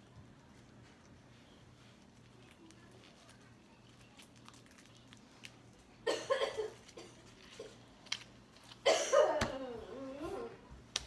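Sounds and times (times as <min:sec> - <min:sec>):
faint crackles and clicks: 0:00.0 - 0:06.0.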